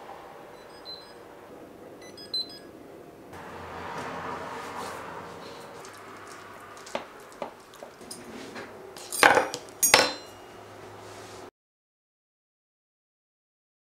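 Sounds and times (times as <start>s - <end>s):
metal fork clinking on plate: 9.0s - 10.5s
fork clattering with ring: 9.0s - 10.6s.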